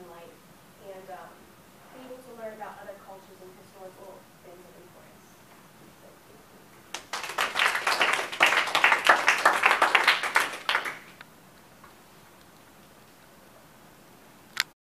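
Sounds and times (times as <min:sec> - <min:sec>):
small group clapping: 0:06.9 - 0:11.2.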